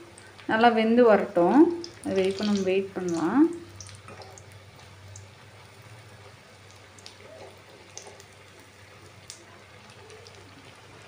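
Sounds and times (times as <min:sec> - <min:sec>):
faint oil sizzle: 0:00.0 - 0:11.0
small crackles: 0:03.8 - 0:11.0.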